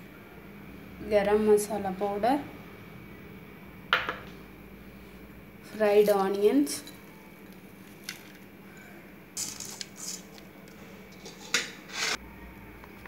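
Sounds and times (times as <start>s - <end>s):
fried onions rustling and crackling: 7.7s - 8.6s, 9.4s - 11.6s.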